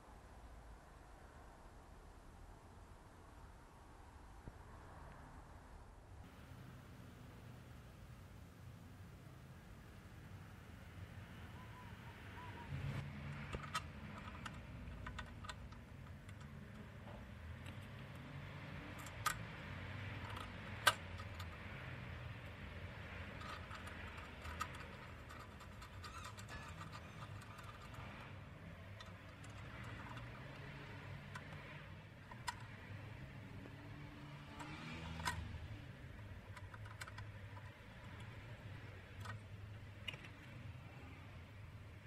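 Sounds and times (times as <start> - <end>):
low steady hum: 0.0 - 42.0
small scale parts clicking: 13.0 - 41.2
screwdriver clicking on screw: 23.3 - 28.3.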